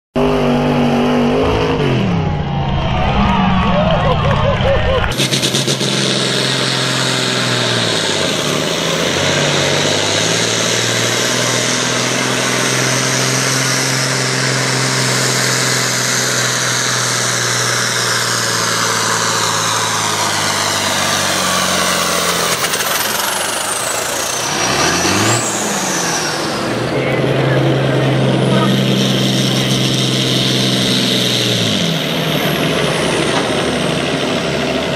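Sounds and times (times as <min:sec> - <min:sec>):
tractor diesel engine under load: 0:00.1 - 0:34.9.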